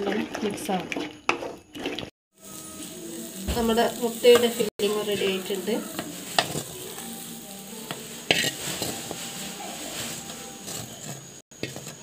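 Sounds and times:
food sizzling in a pan: 0.0 - 12.0
spatula scraping a metal pan: 4.0 - 12.0.

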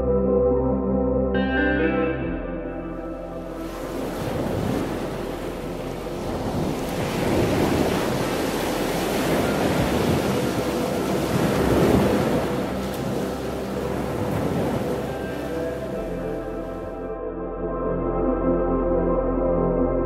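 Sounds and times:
ocean surf breaking on rocks: 3.5 - 16.9.

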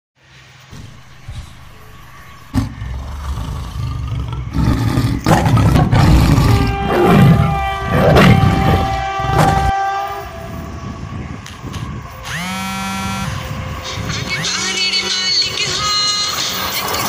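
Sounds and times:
low rumble: 0.7 - 12.5
tiger roaring: 0.8 - 9.7
train horn chord: 6.3 - 15.5.

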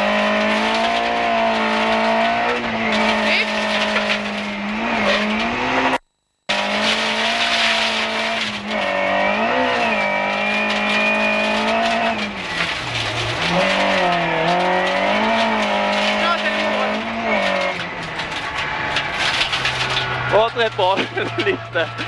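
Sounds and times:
rally car engine at high revs: 0.0 - 22.0
road noise: 0.0 - 22.0.

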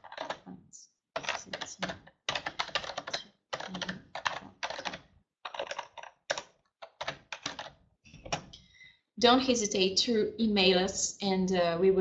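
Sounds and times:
typing on computer keyboard: 0.0 - 0.4, 1.2 - 8.6.

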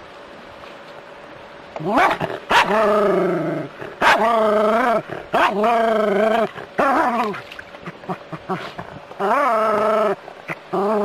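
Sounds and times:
small dog barking: 1.9 - 2.8, 4.0 - 4.3, 5.3 - 5.6.

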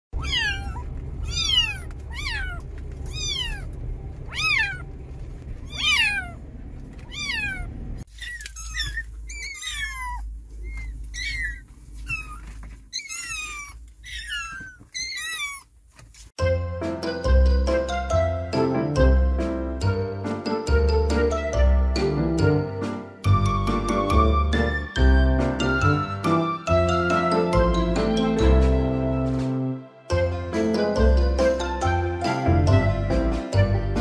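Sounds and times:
kittens mewing: 0.2 - 4.9, 5.6 - 15.8
steady low rumble: 0.2 - 12.9
jingly music: 16.4 - 34.0.

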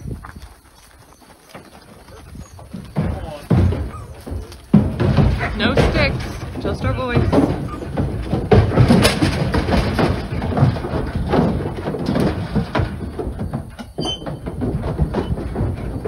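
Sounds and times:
hooves clattering on trailer floor: 0.0 - 16.0
short squeak: 14.0 - 14.4.

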